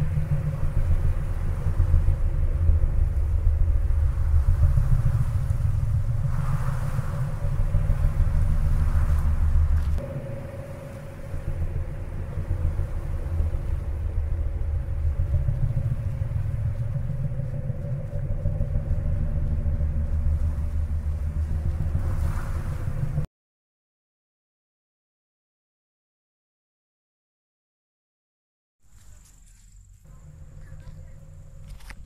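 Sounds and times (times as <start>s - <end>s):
faint steady tone: 0.0s - 23.3s
wind buffeting microphone: 0.0s - 23.3s.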